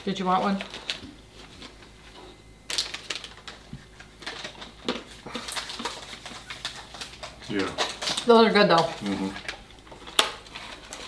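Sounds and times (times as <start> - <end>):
snack bag crinkling: 0.6 - 1.9, 2.6 - 11.0
crisp clicks and crunches: 2.6 - 11.0.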